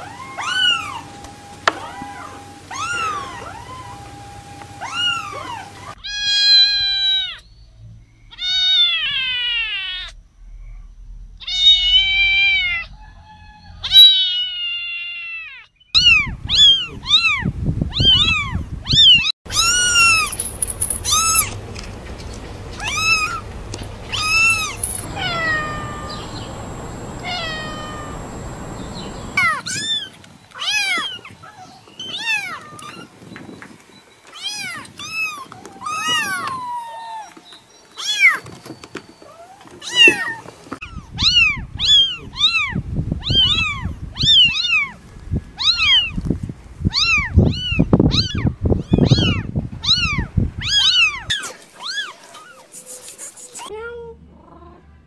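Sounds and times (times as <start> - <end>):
kittens mewing: 19.5 - 29.6.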